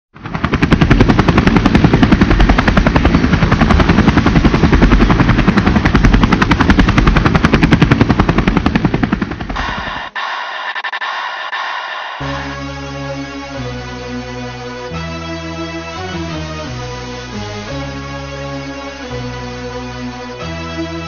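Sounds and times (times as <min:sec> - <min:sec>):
helicopter rotor chopping: 0:00.2 - 0:13.7
music: 0:12.2 - 0:21.0.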